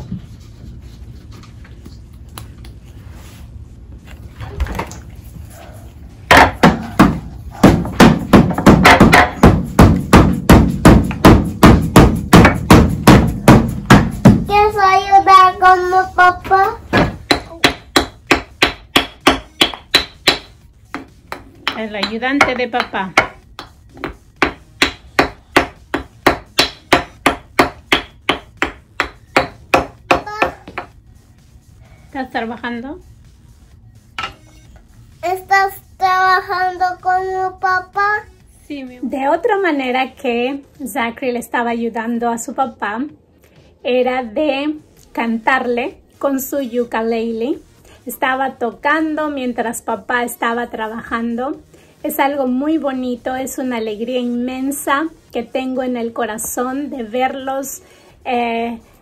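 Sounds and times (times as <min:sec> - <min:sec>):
toy wooden hammer striking wood: 0:17.0 - 0:30.9.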